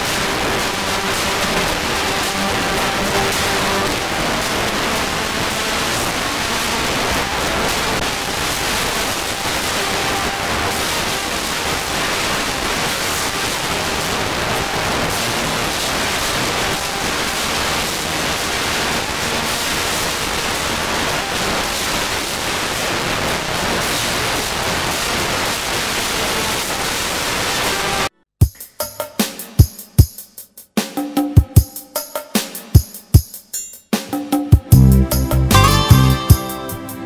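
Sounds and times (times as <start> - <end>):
loud steady hiss: 0.0 - 28.1.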